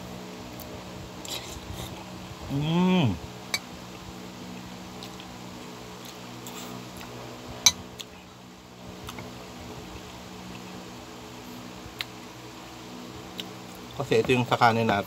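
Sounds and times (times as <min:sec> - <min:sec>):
person humming: 0:02.5 - 0:03.2.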